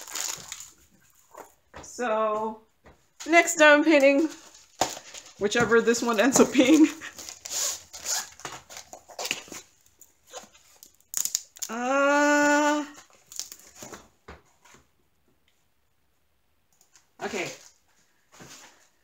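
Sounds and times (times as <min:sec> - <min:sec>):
packaging rustling and crinkling: 0:00.0 - 0:01.6, 0:04.2 - 0:11.7, 0:13.0 - 0:14.1
held voiced sound: 0:11.6 - 0:13.0.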